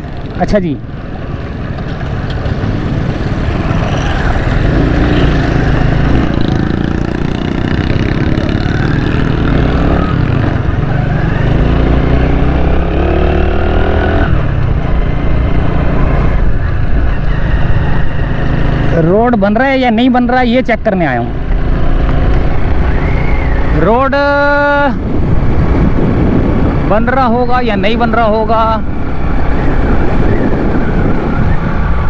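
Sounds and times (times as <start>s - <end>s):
small motorcycle engine riding: 1.2s - 19.4s.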